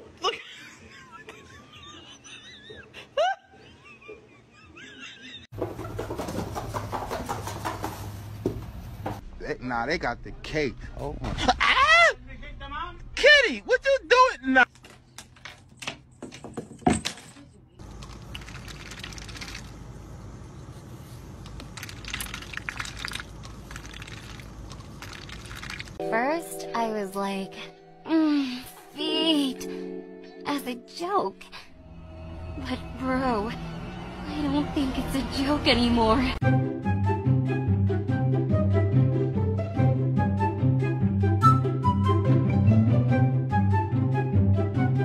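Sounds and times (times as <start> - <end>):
duck dabbling in water: 21.6 - 26.0.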